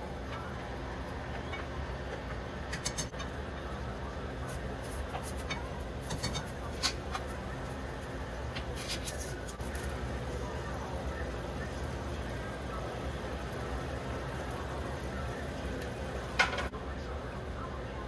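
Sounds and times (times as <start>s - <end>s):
background hum and hiss: 0.0s - 18.0s
spoon scraping a skillet: 4.5s - 7.4s.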